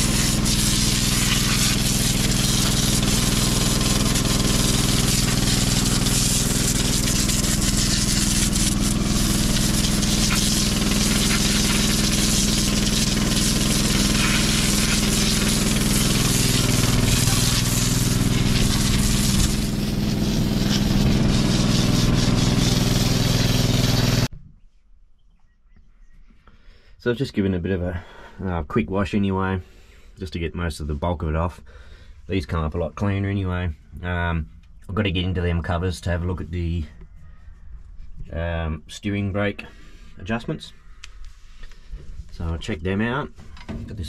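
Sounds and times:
pressure washer motor drone: 0.0s - 24.3s
water jet spraying on steel: 0.0s - 24.3s.

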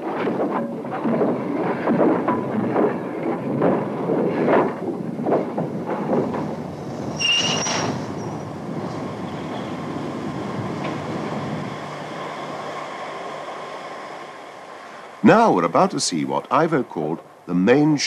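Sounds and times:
clanking of wagons: 0.0s - 17.6s
steam locomotive exhaust beats: 0.0s - 17.6s
high-pitched squeal: 7.1s - 10.2s.

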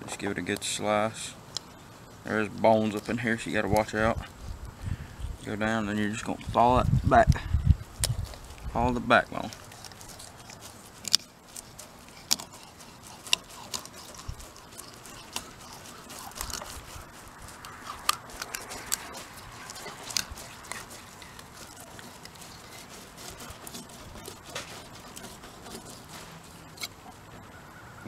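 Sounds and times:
knife crunching through fish bones: 9.3s - 27.1s.

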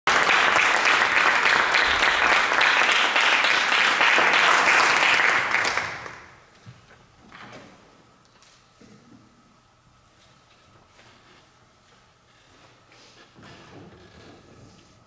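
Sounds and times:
audience applauding: 0.1s - 6.4s.

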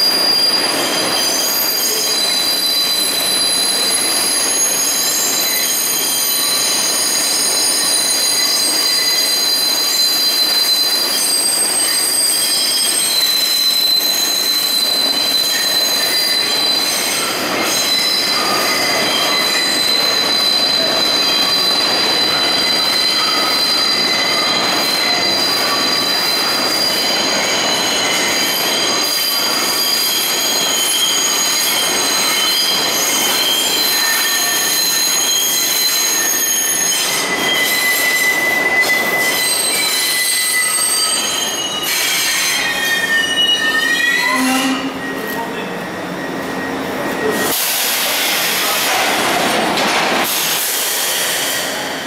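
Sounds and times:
train wheels squealing: 0.0s - 52.0s.

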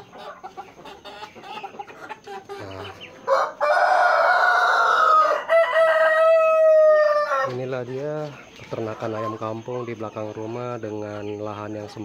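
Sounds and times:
rooster crowing: 3.2s - 7.5s.

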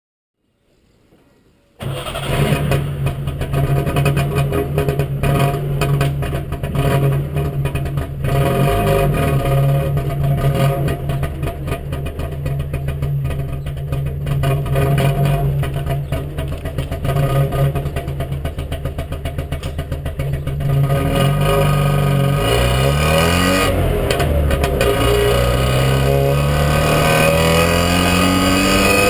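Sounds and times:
two-stroke engine starting and running: 1.8s - 29.0s.

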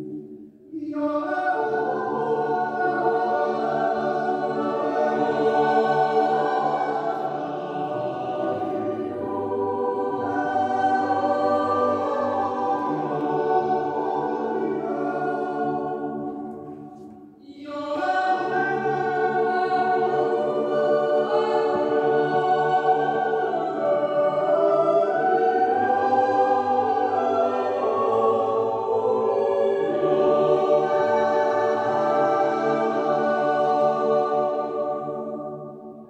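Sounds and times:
yodel choir singing a cappella: 0.0s - 36.0s.

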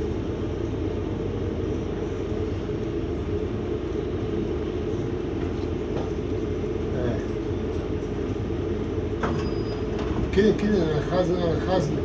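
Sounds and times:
bus engine rumbling: 0.0s - 12.0s
road noise: 0.0s - 12.0s.

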